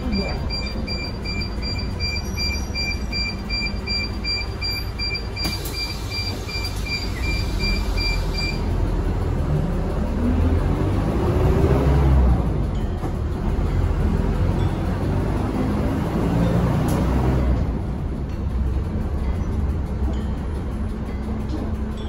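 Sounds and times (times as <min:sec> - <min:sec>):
high electronic beeps: 0:00.0 - 0:08.7
bus diesel engine: 0:00.0 - 0:22.0
road rumble: 0:00.0 - 0:22.0.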